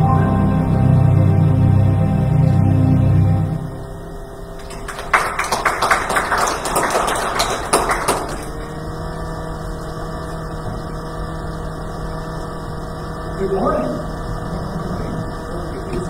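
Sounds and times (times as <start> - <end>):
steady room hum: 0.0 - 16.0
congregation applauding: 4.6 - 8.8.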